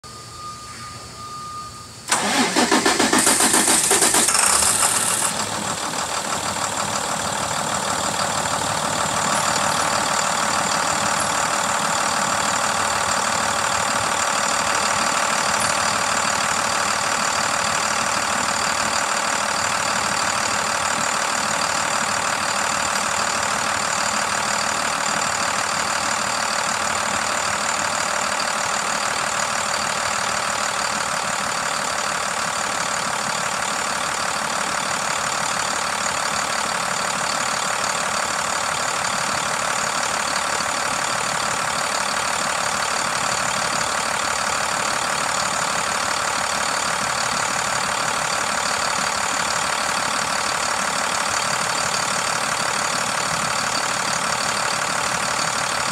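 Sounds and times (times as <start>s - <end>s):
diesel engine idling: 0.1s - 55.9s.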